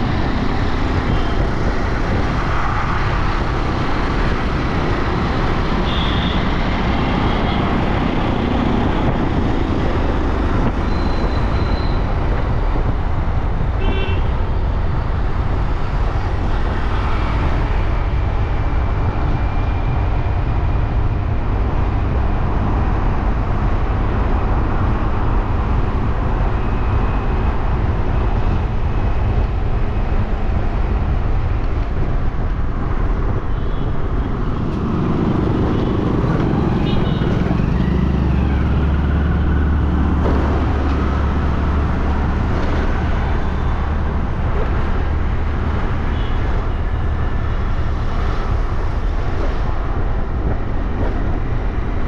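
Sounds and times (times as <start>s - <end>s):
wind and road noise: 0.0s - 52.0s
vehicle horn toots: 5.8s - 6.4s.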